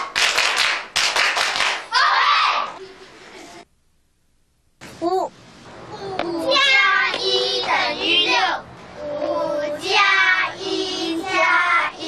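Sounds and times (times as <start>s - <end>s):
children singing: 6.5s - 12.0s.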